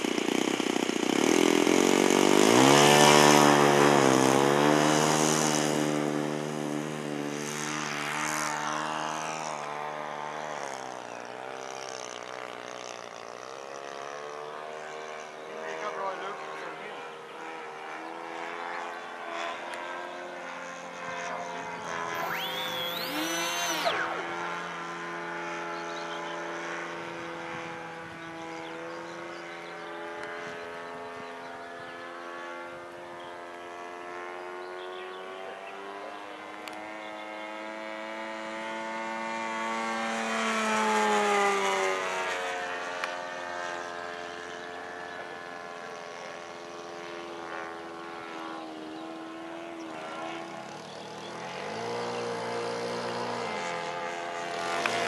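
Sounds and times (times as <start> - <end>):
model airplane engine: 0.0 - 55.0
rising whistle: 22.0 - 24.8.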